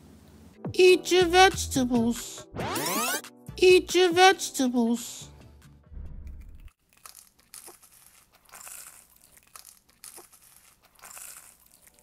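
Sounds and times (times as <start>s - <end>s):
packaging crinkling: 6.8s - 12.0s.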